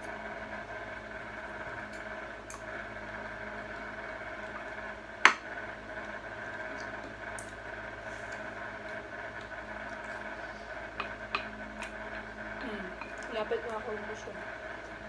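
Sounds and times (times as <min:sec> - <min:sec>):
steady background hum: 0:00.0 - 0:15.0
utensil clacking against dish: 0:11.0 - 0:12.3.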